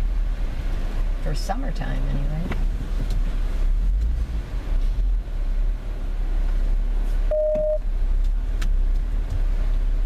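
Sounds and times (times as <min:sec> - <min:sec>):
car interior rumble: 0:00.0 - 0:10.0
short electronic beep: 0:07.3 - 0:07.8.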